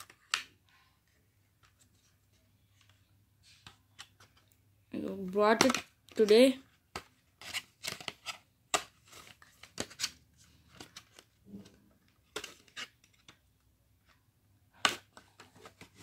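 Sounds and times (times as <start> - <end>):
earphones rustling and clicking: 14.8 - 16.0.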